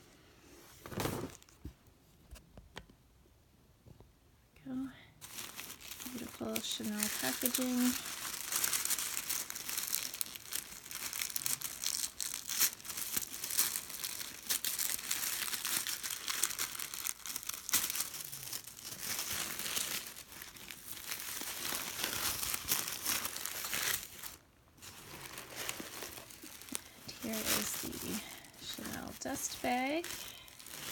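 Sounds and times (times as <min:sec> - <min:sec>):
tissue paper crinkling: 0:05.2 - 0:30.9.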